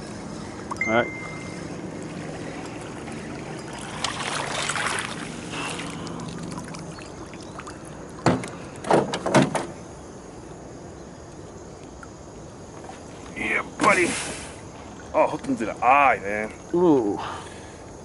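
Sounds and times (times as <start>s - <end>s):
fish splashing at water surface: 0.6s - 9.0s
knocks against boat: 8.2s - 9.8s.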